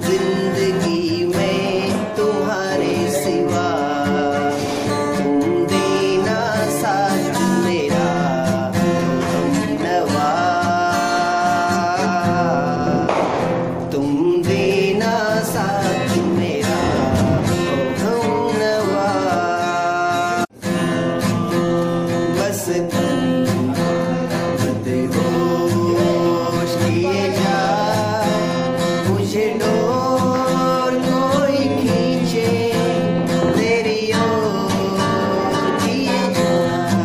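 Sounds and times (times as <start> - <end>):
men singing: 0.0 - 20.5, 22.3 - 37.0
acoustic guitar: 0.0 - 37.0.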